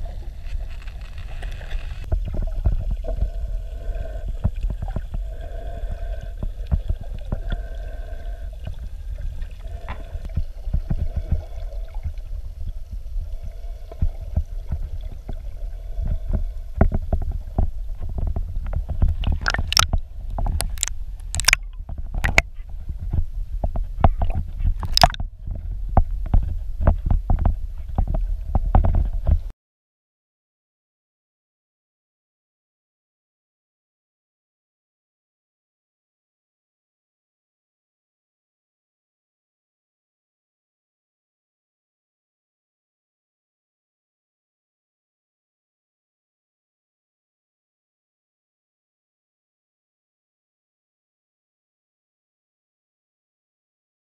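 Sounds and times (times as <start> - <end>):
water rumbling against camera housing: 0.0 - 29.5
sharp clicks and pops: 18.2 - 22.5, 24.1 - 25.3.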